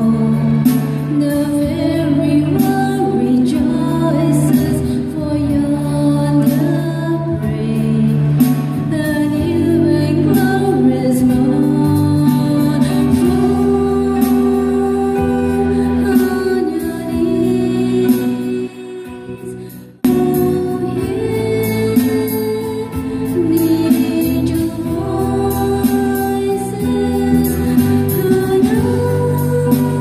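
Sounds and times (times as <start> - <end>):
woman singing into a microphone: 0.0 - 30.0.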